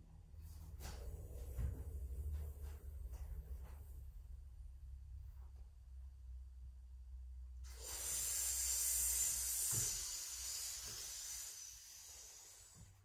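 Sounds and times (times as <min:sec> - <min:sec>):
hissing breath drawn in: 0:07.7 - 0:13.0.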